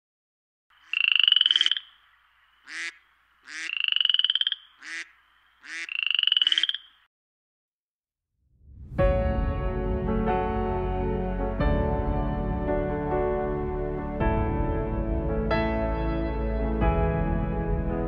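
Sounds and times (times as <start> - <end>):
frog croaking: 0.7 - 7.1.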